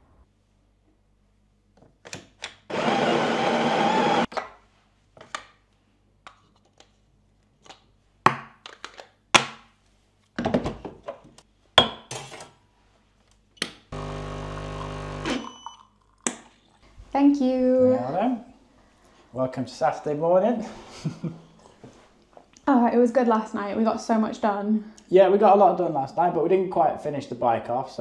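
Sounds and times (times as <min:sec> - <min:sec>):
coffee grinder grinding: 0:02.7 - 0:04.3, 0:14.0 - 0:15.4.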